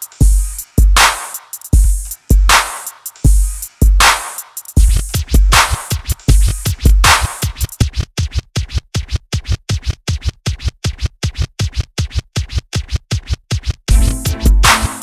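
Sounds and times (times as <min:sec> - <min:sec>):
electronic drum-machine music: 0:00.0 - 0:15.0
scratch-like dj effect: 0:04.3 - 0:15.0.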